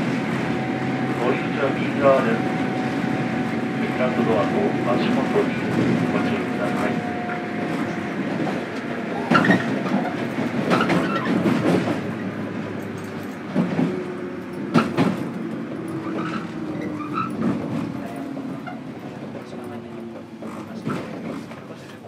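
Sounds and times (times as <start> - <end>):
train motor tone: 0.0 - 10.2
train wheels rumbling on rails: 0.0 - 22.0
clacks over rail joints: 3.5 - 22.0.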